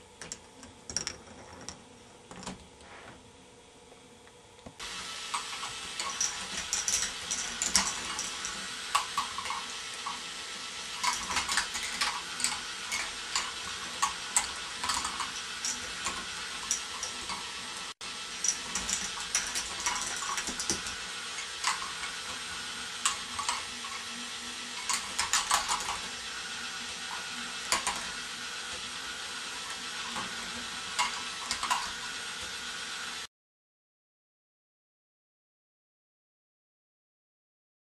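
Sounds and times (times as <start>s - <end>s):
plastic balls clattering on tracks: 10.9s - 17.6s, 18.4s - 24.1s, 24.8s - 26.2s, 27.1s - 28.9s, 29.6s - 32.0s.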